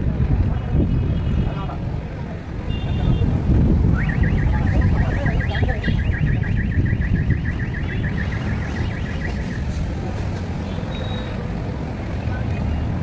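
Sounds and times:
warbling electronic alarm: 3.9 - 9.7.

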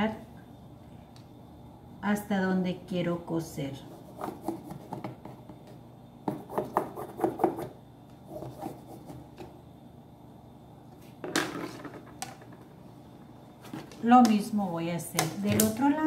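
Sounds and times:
pencil scratching on fabric: 8.3 - 9.2.

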